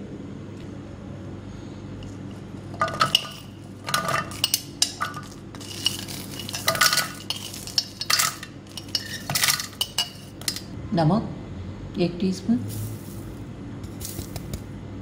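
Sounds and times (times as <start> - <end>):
garlic and chillies clattering: 2.6 - 10.8, 12.7 - 14.7.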